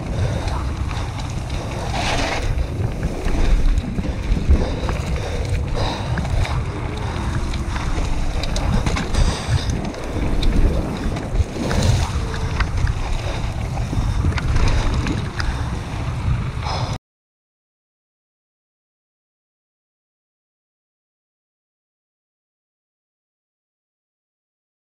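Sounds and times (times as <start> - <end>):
tyres rumbling over dirt: 0.0 - 16.8
bike rattles and clicks: 0.0 - 17.0
wind buffeting microphone: 0.0 - 17.0.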